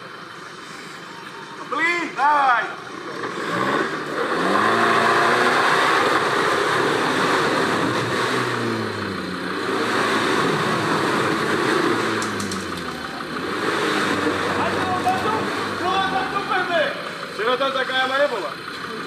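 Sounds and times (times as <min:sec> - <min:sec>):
engine revving under load: 0:02.6 - 0:19.0.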